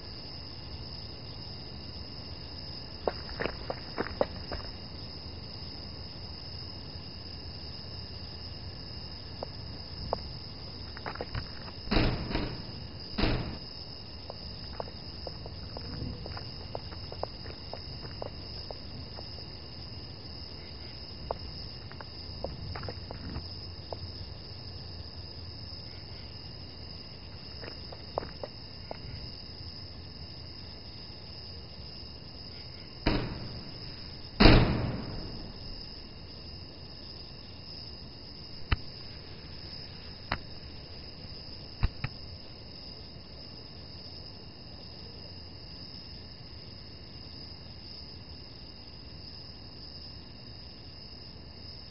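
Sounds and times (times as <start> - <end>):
heavy bangs: 11.9 - 13.6, 33.1 - 36.2
sharp clicks: 33.1 - 35.8.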